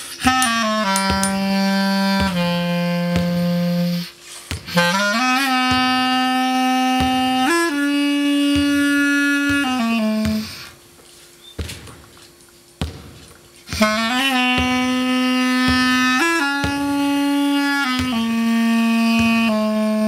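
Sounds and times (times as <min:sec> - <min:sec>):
clarinet playing low notes: 0:00.0 - 0:20.0
soft knocks: 0:11.5 - 0:15.0.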